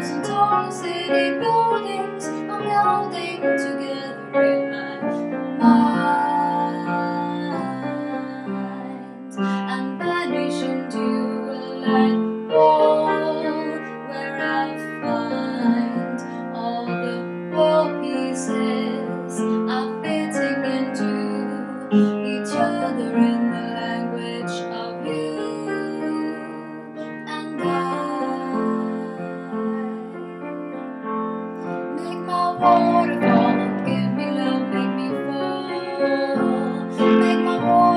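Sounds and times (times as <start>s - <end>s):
woman singing: 0.0s - 30.7s, 31.9s - 37.9s
acoustic piano chords: 0.0s - 37.9s.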